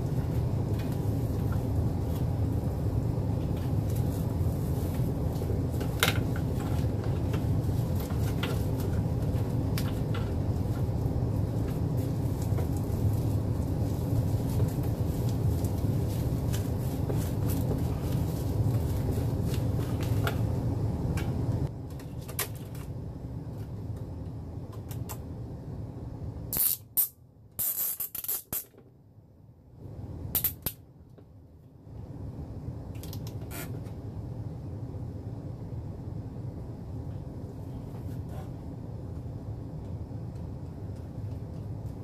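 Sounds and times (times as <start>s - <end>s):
low rumble: 0.0s - 26.5s.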